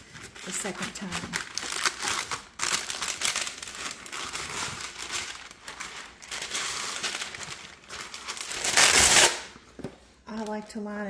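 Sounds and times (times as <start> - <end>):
stiff paper crinkling: 0.0 - 9.6
paper tearing: 1.7 - 9.5.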